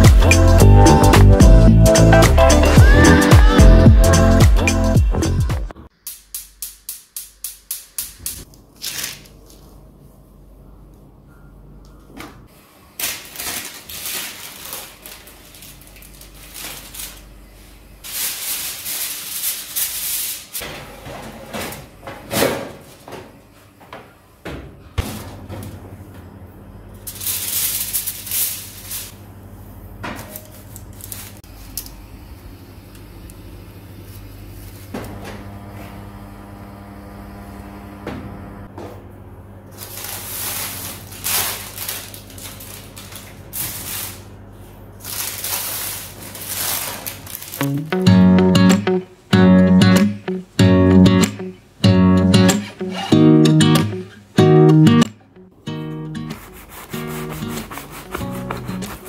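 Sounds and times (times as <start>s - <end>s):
paper and foil crinkling: 8.7s - 9.8s, 13.0s - 20.6s, 27.1s - 29.2s, 30.3s - 31.5s, 39.8s - 44.4s, 45.0s - 47.8s, 56.4s - 59.0s.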